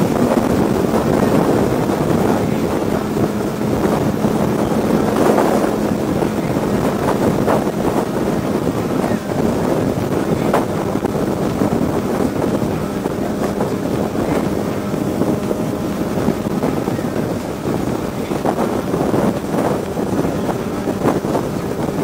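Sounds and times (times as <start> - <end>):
motorcycle engine cruising: 0.0 - 22.0
wind rushing over microphone: 0.0 - 22.0.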